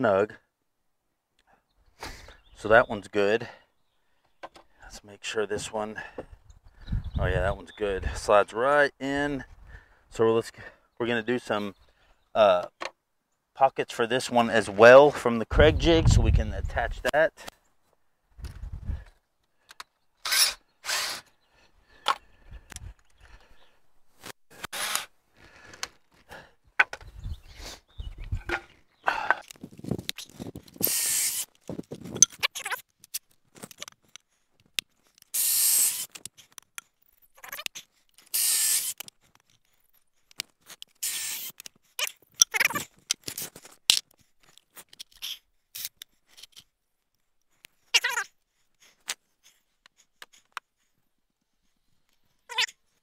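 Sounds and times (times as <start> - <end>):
knocks and clicks of handling tools: 4.2 - 4.7, 12.7 - 13.0, 26.8 - 27.1, 28.4 - 30.8
cordless drill boring into wood: 20.2 - 21.4, 24.6 - 25.1, 30.8 - 31.5, 35.3 - 36.2, 38.3 - 39.1, 41.0 - 41.6.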